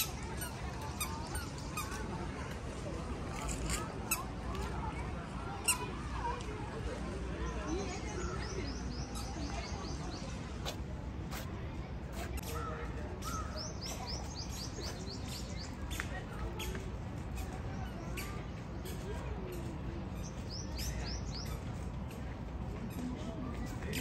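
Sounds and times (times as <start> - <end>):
birds chirping: 12.3 - 16.8, 20.2 - 21.9.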